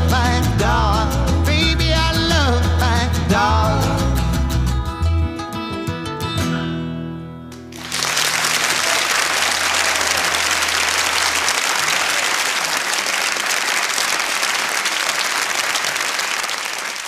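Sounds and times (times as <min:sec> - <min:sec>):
audience applause: 0:07.6 - 0:17.0.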